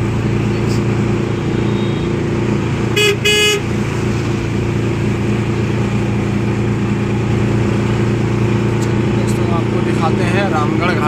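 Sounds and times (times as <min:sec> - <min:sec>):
vehicle engine and road noise: 0:00.0 - 0:11.0
car horn tooting: 0:01.3 - 0:02.2, 0:02.9 - 0:03.7.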